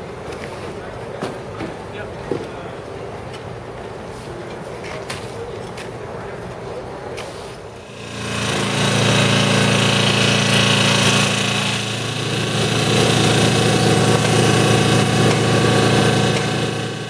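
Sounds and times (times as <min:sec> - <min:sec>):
rail saw engine droning: 0:07.7 - 0:17.0
saw grinding hiss: 0:07.8 - 0:17.0.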